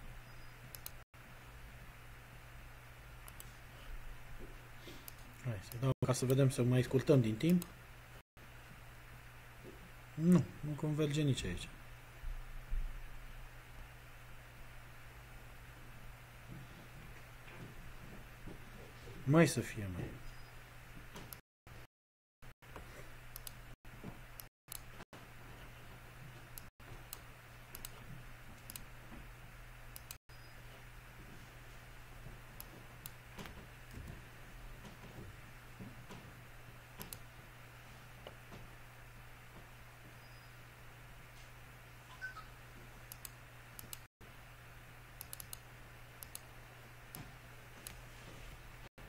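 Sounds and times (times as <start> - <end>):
faint steady hum: 0.0 - 21.0
computer mouse clicking: 0.7 - 1.0, 23.3 - 23.6, 26.6 - 28.0, 28.6 - 28.9, 30.0 - 30.2, 37.0 - 37.2, 43.1 - 44.1, 45.2 - 45.6, 46.2 - 46.5.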